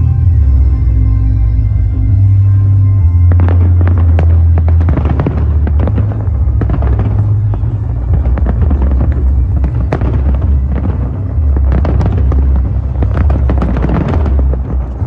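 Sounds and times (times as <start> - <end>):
continuous low rumble: 0.0 - 15.0
fireworks bursting and crackling: 3.2 - 15.0.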